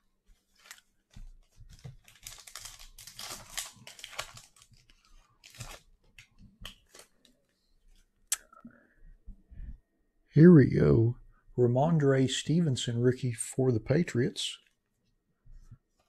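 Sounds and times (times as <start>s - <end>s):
card pack wrapper tearing: 1.8s - 5.8s.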